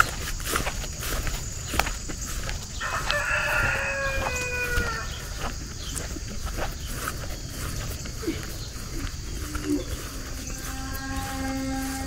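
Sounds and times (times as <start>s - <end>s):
rooster crowing: 2.8s - 5.6s.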